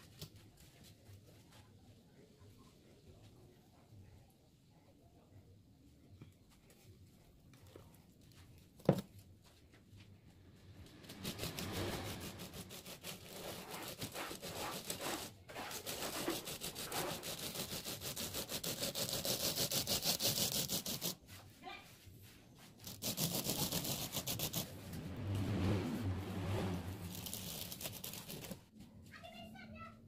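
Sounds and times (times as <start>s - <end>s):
wood scraping wet mortar: 10.9s - 21.2s, 22.6s - 25.1s, 26.6s - 28.7s.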